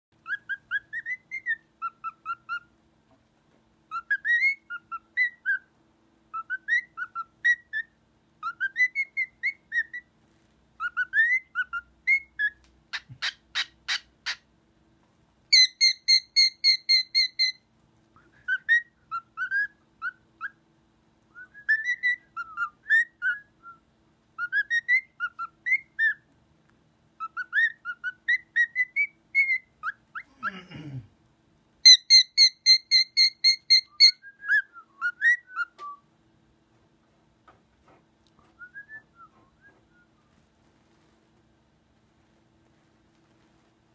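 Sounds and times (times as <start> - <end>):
cockatiel whistling: 0.2 - 2.7, 3.9 - 5.7, 6.3 - 10.1, 10.8 - 14.4, 15.5 - 17.6, 18.2 - 20.6, 21.3 - 23.8, 24.4 - 26.3, 27.2 - 30.2, 31.8 - 36.0
shrill bird notes: 15.5 - 17.6, 31.9 - 35.8.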